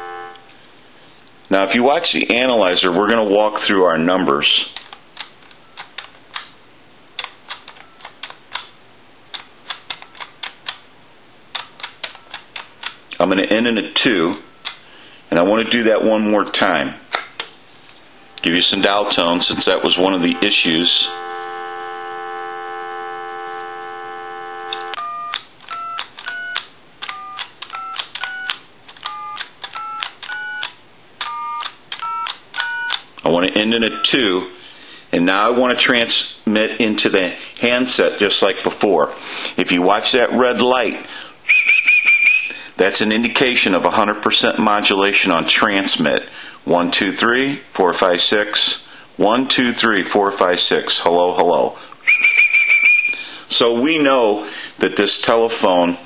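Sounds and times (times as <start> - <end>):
telephone keypad button clicks: 24.7 - 33.0.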